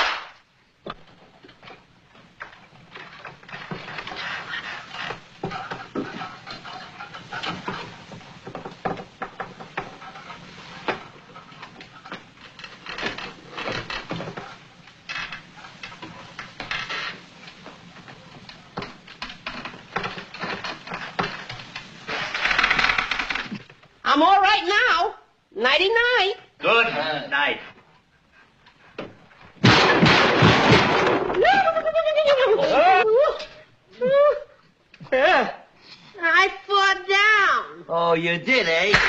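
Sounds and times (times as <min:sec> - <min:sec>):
rustling noise: 0:00.0 - 0:24.1
wooden chairs creaking and knocking: 0:00.0 - 0:24.5, 0:27.7 - 0:35.4.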